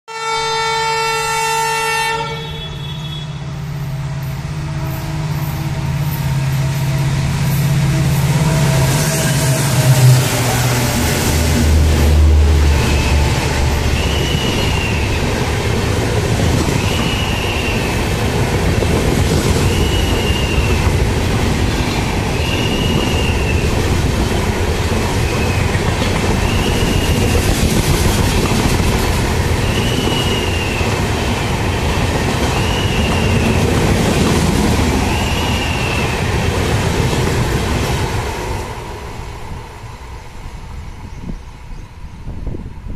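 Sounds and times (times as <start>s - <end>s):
locomotive horn: 0.1s - 15.1s
locomotive engine drone: 3.4s - 16.6s
train wheels rumbling and clattering: 3.7s - 42.9s.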